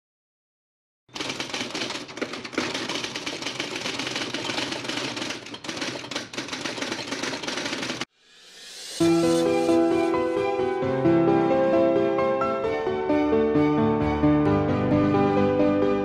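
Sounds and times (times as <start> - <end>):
typewriter clatter: 1.1 - 8.1
music: 8.3 - 16.0.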